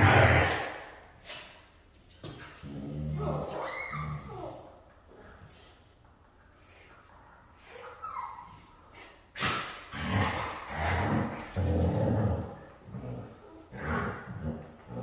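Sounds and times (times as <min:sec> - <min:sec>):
dogs growling in play: 0:00.0 - 0:00.9, 0:02.2 - 0:05.6, 0:08.3 - 0:15.0.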